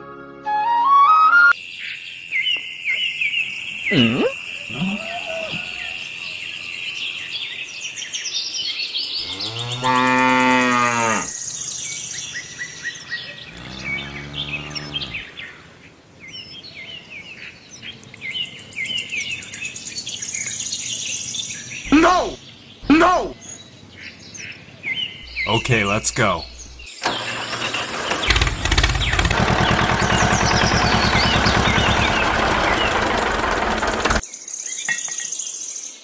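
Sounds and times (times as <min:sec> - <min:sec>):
birds chirping: 0:01.8 - 0:36.0
cow mooing: 0:09.2 - 0:11.3, 0:13.4 - 0:15.3.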